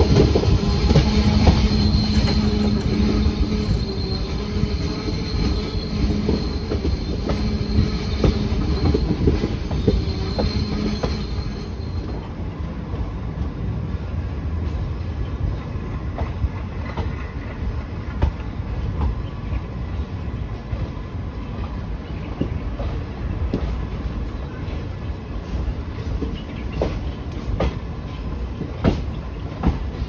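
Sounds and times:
train coaches rumbling: 0:00.0 - 0:30.0
thin wheel squeal: 0:00.6 - 0:12.2.

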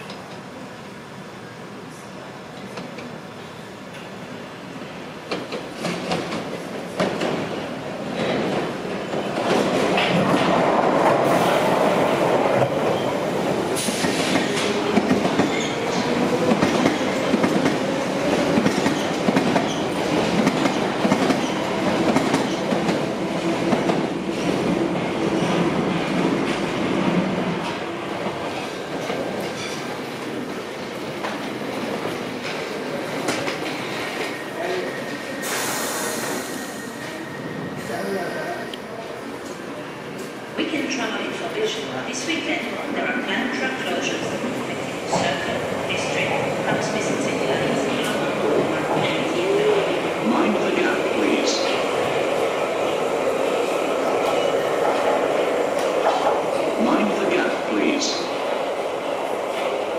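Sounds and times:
train wheels squealing: 0:34.2 - 0:38.6.

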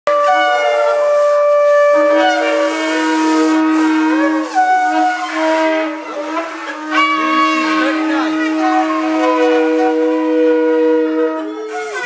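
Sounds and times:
ram's horns blowing: 0:00.1 - 0:12.0.

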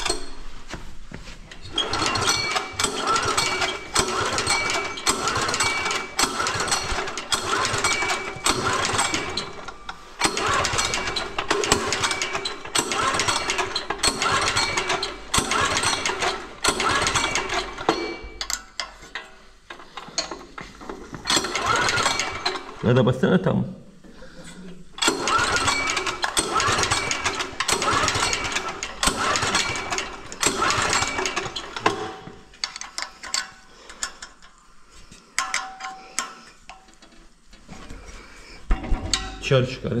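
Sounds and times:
diesel engine turning over: 0:01.7 - 0:18.9, 0:19.7 - 0:22.9, 0:25.0 - 0:34.4.

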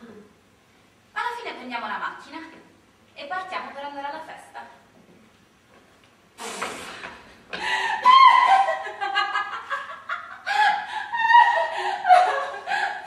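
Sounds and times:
woman's breathy rush of air: 0:06.4 - 0:08.1
woman giggling: 0:07.9 - 0:13.0.

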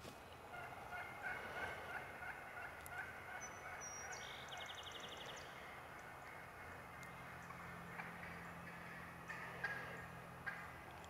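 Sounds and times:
turkey gobbling: 0:00.5 - 0:04.3, 0:06.2 - 0:10.8.

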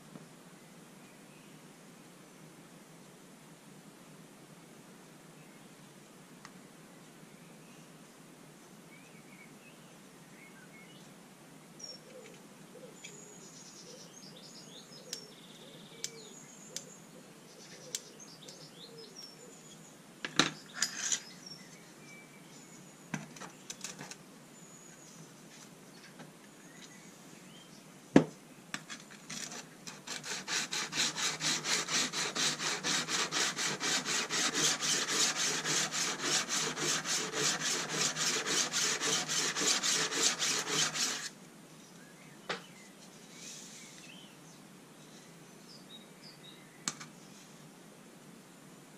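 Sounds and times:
blade rasping on sharpening plate: 0:30.0 - 0:41.3.

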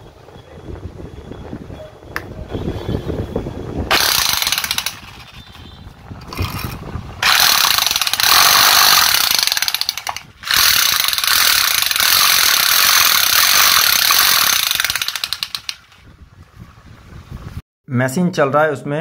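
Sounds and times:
demolition hammer motor running: 0:03.9 - 0:05.6, 0:06.2 - 0:16.0.

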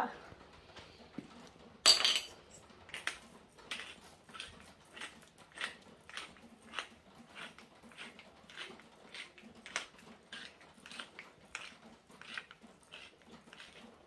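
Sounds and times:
pepper grinder crunching peppercorns: 0:02.9 - 0:14.0.

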